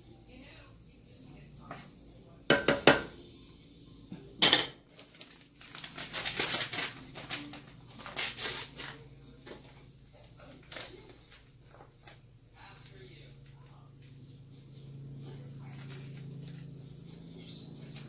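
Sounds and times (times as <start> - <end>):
wooden spoon knocking on skillet: 2.5 - 3.2
crinkly rustling: 4.9 - 14.2, 15.5 - 18.0.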